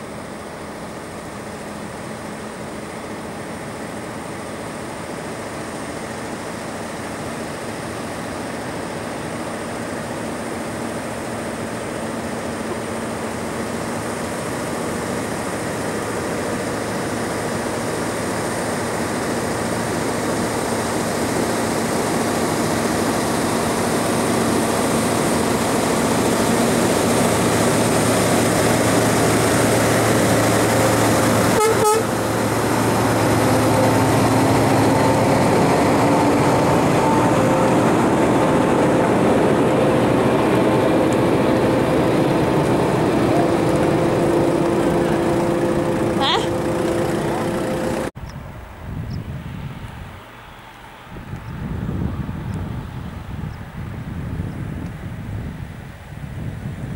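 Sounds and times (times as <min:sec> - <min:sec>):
escort vehicle engines: 0:00.0 - 0:56.9
truck engine and tyre noise: 0:00.0 - 0:56.9
truck horn toot: 0:31.4 - 0:32.3.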